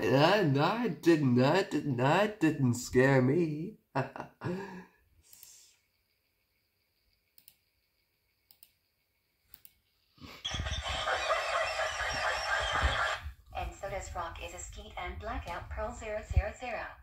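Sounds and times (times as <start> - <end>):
faint clicks: 7.3 - 7.7, 8.4 - 8.9, 9.5 - 9.9
harsh noisy video audio: 10.4 - 17.0.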